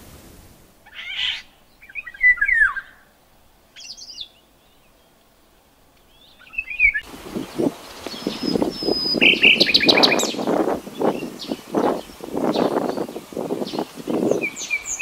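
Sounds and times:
bird singing fluty whistles: 0:01.8 - 0:03.1, 0:06.1 - 0:07.1, 0:08.0 - 0:13.1.

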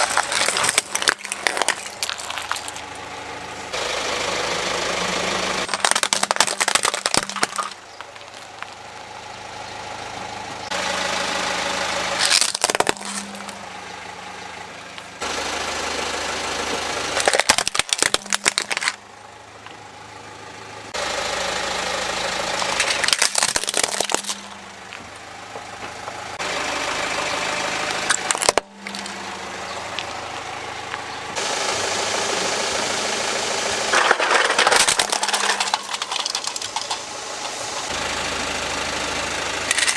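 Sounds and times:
plastic toys crunching under tyre: 0:00.0 - 0:03.1, 0:05.6 - 0:08.9, 0:12.2 - 0:13.7, 0:17.1 - 0:19.0, 0:22.5 - 0:25.2, 0:28.0 - 0:29.2, 0:33.9 - 0:38.0, 0:39.7 - 0:39.9
car engine running: 0:00.0 - 0:39.9.

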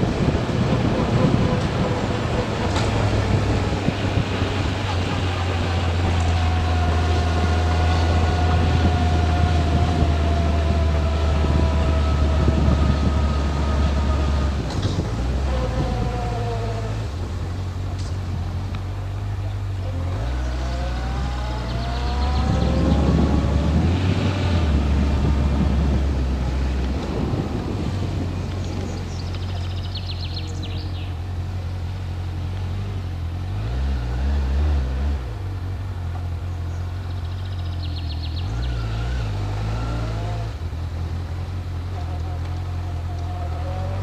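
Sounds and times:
motorcycle engine running: 0:00.0 - 0:33.5
wind and road noise: 0:00.0 - 0:44.0.

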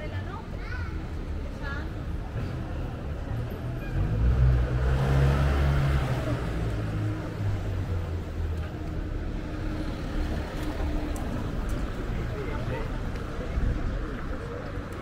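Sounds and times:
street noise: 0:00.0 - 0:15.0
vehicle engine passing by: 0:03.3 - 0:08.1.

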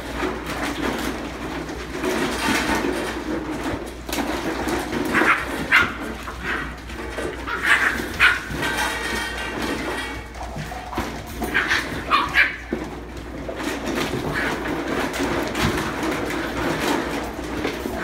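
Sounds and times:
puppies yipping and barking: 0:05.0 - 0:12.9.

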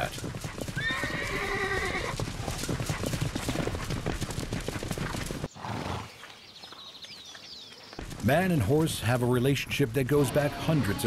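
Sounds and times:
horses galloping through snow: 0:00.0 - 0:10.3.

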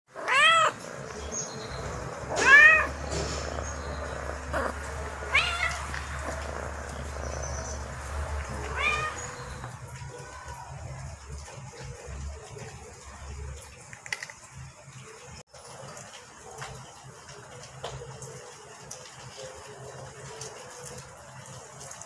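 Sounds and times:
kitten meowing: 0:00.2 - 0:00.8, 0:02.3 - 0:03.1, 0:03.8 - 0:09.7.

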